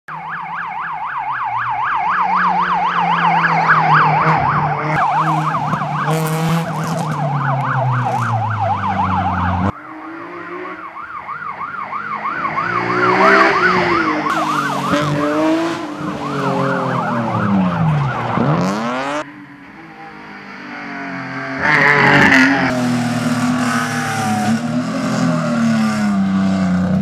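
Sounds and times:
warbling siren: 0:00.1 - 0:26.2
car engine passing: 0:02.0 - 0:27.0.

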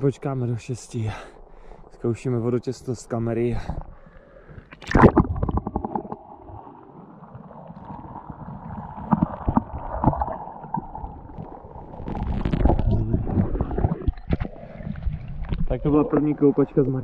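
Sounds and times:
water splashing: 0:04.7 - 0:17.0
muffled underwater gurgling: 0:07.8 - 0:17.0.

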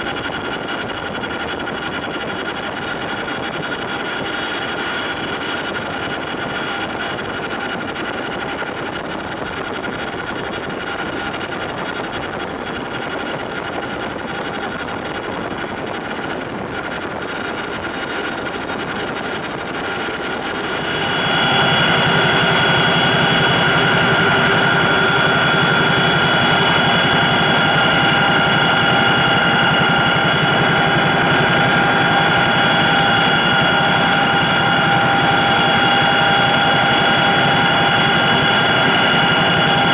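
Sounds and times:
helicopter cabin drone: 0:00.0 - 0:39.9
high-pitched whines: 0:18.2 - 0:39.9.

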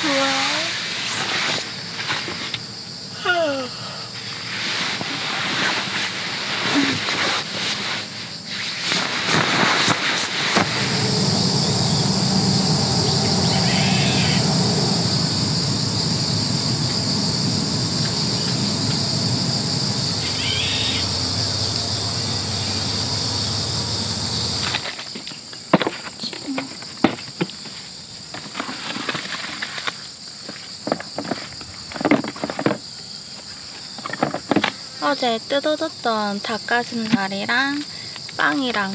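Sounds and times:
insects droning: 0:00.0 - 0:38.9
bedding rustling: 0:04.4 - 0:11.0
loud low rumble: 0:10.6 - 0:24.6.

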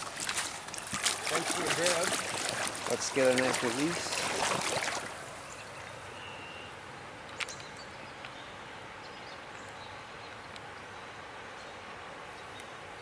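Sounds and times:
water splashing around hands: 0:00.0 - 0:05.4
river flowing: 0:00.0 - 0:13.0.

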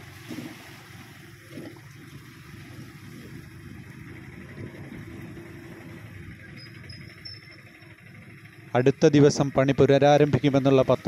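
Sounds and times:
wind rumbling on microphone: 0:00.0 - 0:06.9
small motorcycle engine running: 0:00.0 - 0:11.0.

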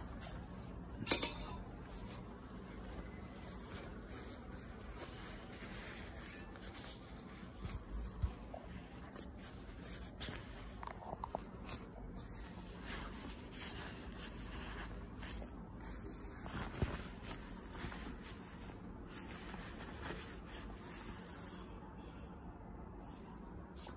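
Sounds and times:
nylon jacket rustling and crinkling: 0:00.0 - 0:21.6.

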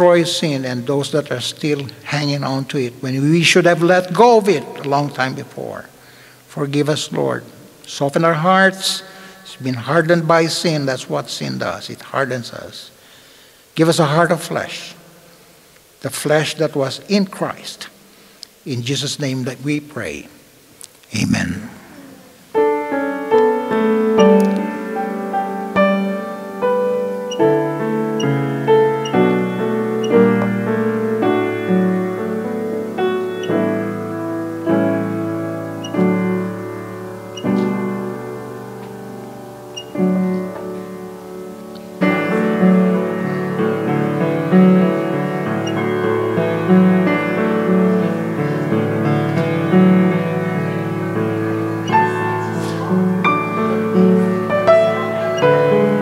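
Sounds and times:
sustained keyboard chords: 0:21.1 - 0:56.0.

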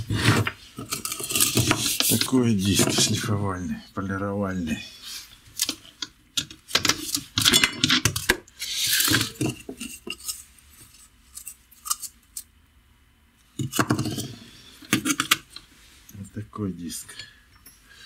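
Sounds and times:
metal scrape: 0:00.0 - 0:03.3, 0:08.6 - 0:12.2.

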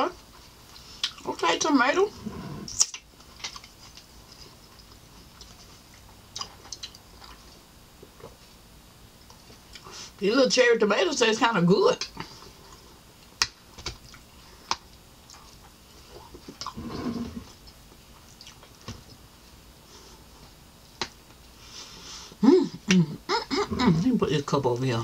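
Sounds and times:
chewing and utensil clicks: 0:04.8 - 0:07.4.

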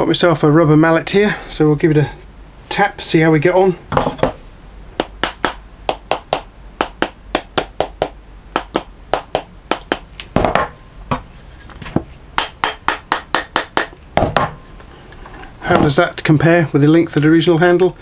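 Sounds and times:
rubber mallet knocking wood: 0:05.0 - 0:11.3, 0:12.0 - 0:14.6.

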